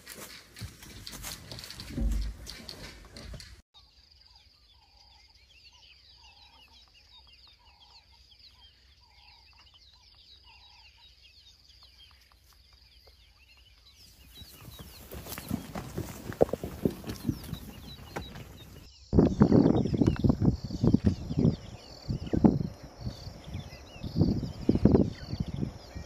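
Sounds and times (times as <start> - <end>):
rough sounds with sharp knocks: 0.0 - 3.6
high bird chirps: 17.0 - 26.0
steady high insect tone: 18.9 - 26.0.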